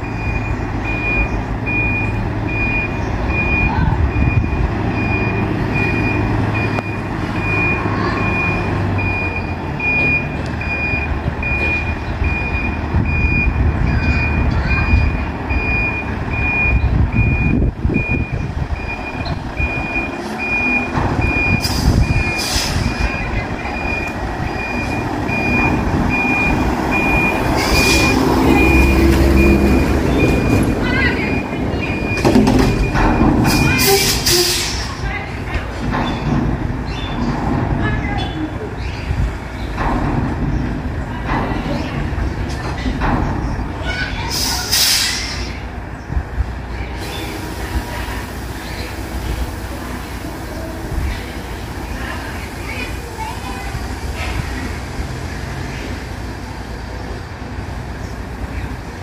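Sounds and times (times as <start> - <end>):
truck back-up alarm beeping: 0.0 - 34.9
diesel engine running: 0.0 - 59.0
air brake hisses: 21.6 - 22.9, 44.3 - 45.5.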